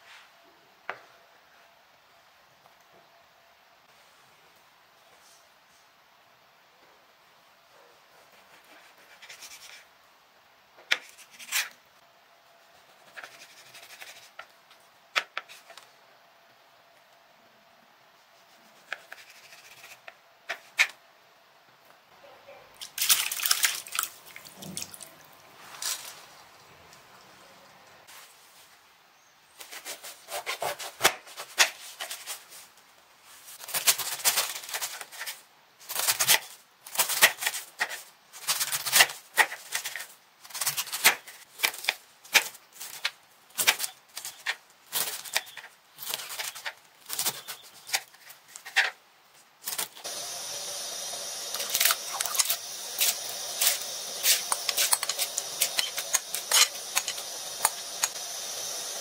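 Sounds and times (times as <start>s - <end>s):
knife slicing cabbage on board: 18.7s - 21.0s, 29.6s - 32.3s
rice cooking hiss and pops: 49.8s - 59.0s.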